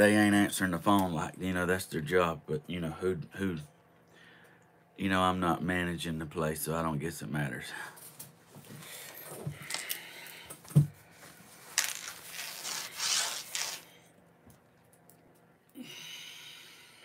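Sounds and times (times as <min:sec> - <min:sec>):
rubbing and rustling: 0:11.0 - 0:14.0.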